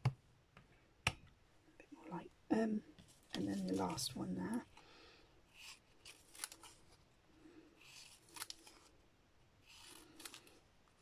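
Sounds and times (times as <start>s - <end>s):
scissors snipping paper: 5.6s - 6.8s, 7.9s - 8.9s, 9.7s - 10.6s.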